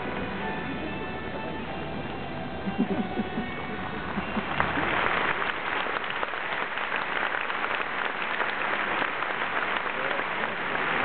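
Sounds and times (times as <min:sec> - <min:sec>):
large crowd applauding: 0:04.1 - 0:11.0.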